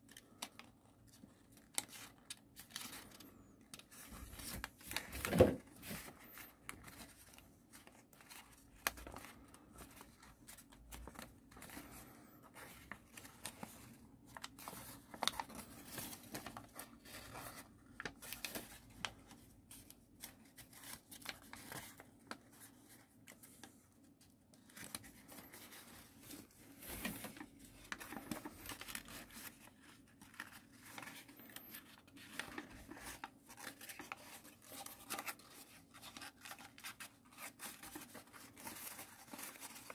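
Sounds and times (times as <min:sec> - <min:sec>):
paper rustling and crinkling: 0:00.0 - 0:39.9.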